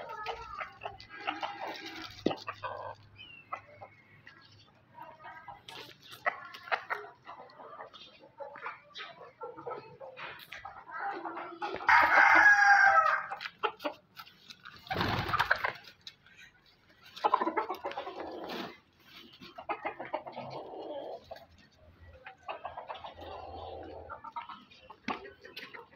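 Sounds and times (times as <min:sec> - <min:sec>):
chickens clucking: 0:00.0 - 0:25.9
rooster crowing: 0:11.9 - 0:13.3.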